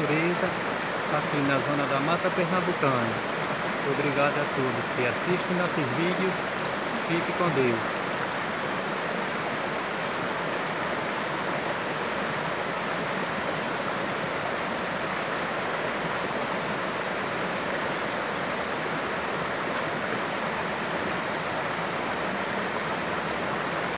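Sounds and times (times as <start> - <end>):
water rushing over rocks: 0.0 - 23.9.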